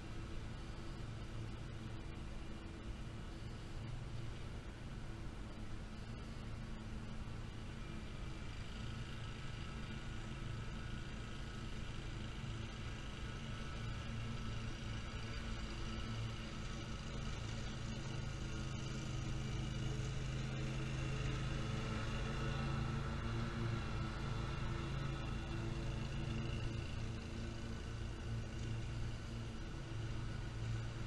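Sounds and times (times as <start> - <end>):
lawn mower engine running: 7.7 - 31.0.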